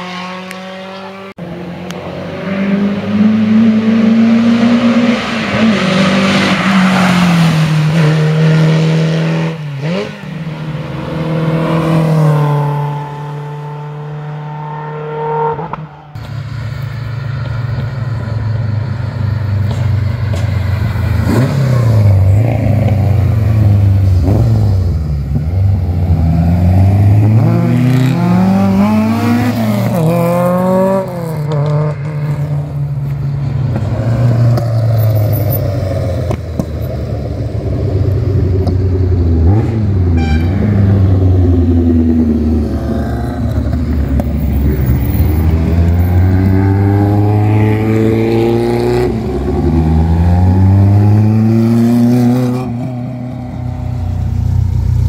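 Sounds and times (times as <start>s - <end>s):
car engine revving through gears: 0.0s - 15.9s, 21.1s - 32.7s, 40.7s - 54.2s.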